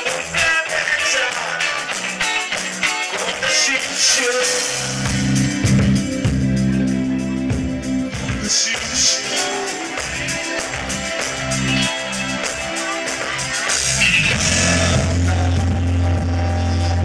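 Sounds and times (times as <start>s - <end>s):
person singing: 0.0s - 6.3s, 8.1s - 17.0s
rock band playing: 0.0s - 17.0s.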